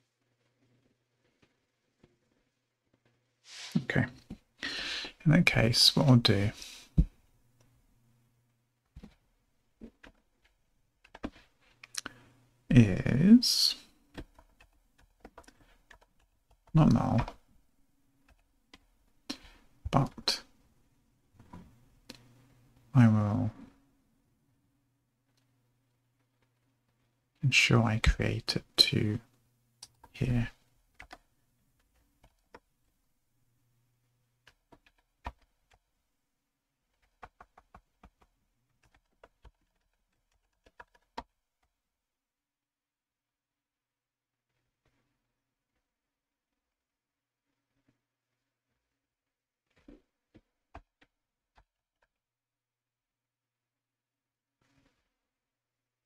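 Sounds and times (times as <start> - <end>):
faint steady hum: 0.0 - 39.0
keyboard clicks: 14.1 - 17.4, 37.0 - 41.3.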